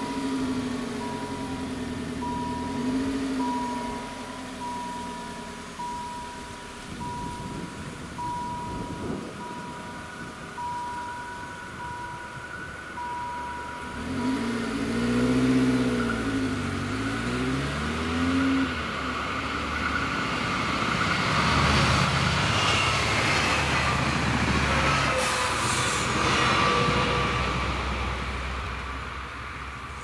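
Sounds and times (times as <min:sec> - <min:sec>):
car engine accelerating: 0:00.0 - 0:10.7, 0:12.9 - 0:22.8
car passing by: 0:13.9 - 0:29.9
train noise: 0:18.7 - 0:30.0.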